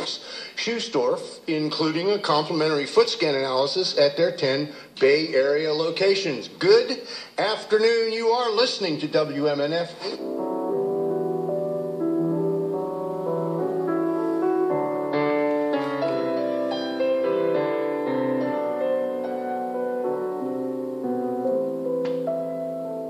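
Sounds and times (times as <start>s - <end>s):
piano music through small speaker: 9.1s - 23.0s.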